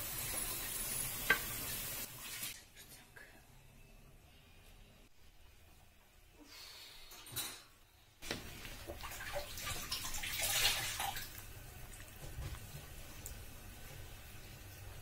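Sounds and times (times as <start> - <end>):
liquid boiling in a pot: 8.2 - 15.0.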